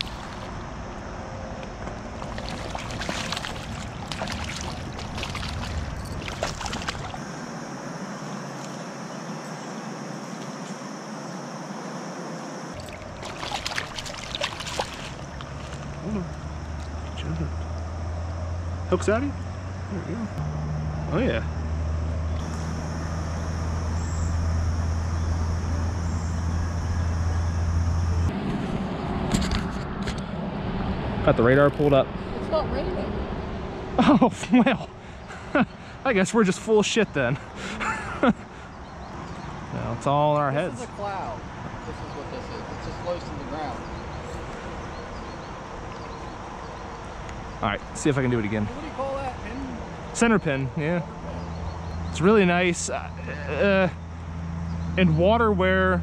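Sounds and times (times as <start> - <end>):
fish splashing at water surface: 0.0 - 0.5, 2.1 - 7.2, 12.8 - 16.1
flowing creek water: 0.0 - 0.6, 2.0 - 7.4, 12.7 - 17.6
low hum: 12.7 - 32.5.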